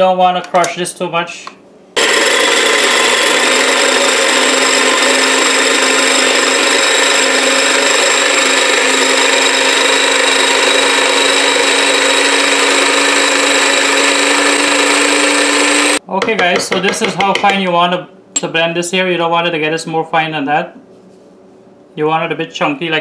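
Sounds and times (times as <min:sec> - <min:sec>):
electric blender chopping: 0:02.0 - 0:16.0.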